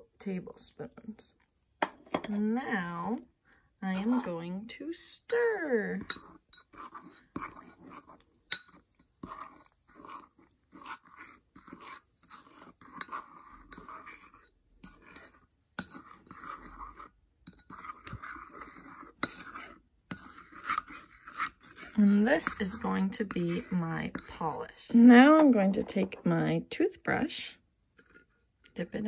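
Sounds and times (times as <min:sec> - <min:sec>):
spoon scraping paste in bowl: 0:03.8 - 0:29.0
spoon clinking bowl: 0:06.0 - 0:09.6.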